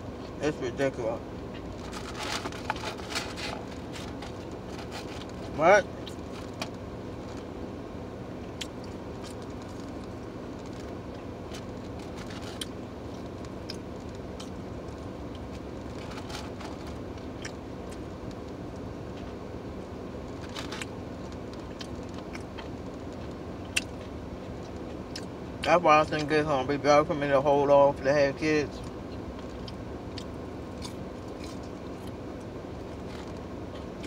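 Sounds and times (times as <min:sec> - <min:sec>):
car interior hum: 0:00.0 - 0:34.0
takeout container crinkling: 0:01.6 - 0:07.4, 0:15.8 - 0:17.2.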